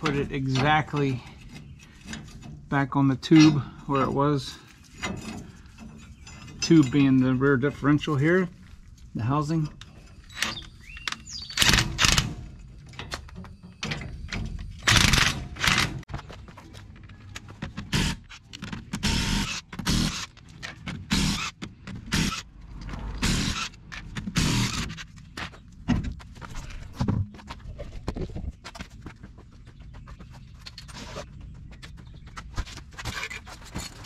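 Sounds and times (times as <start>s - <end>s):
tools knocking and scraping: 0.0s - 8.2s, 9.2s - 16.2s, 30.2s - 34.0s
impact wrench spinning lug nuts: 21.0s - 25.0s.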